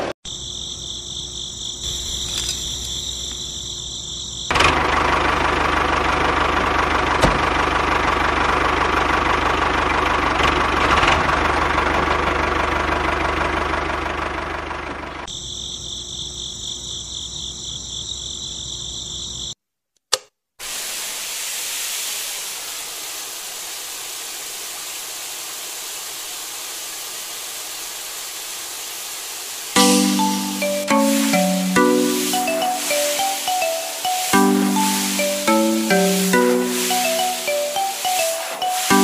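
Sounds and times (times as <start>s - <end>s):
water spray hissing: 20.6s - 39.0s.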